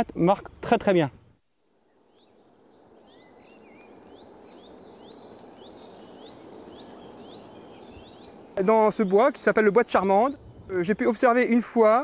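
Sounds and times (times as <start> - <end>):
steady background hush: 0.0 - 12.0
bird rising call notes: 1.8 - 9.6.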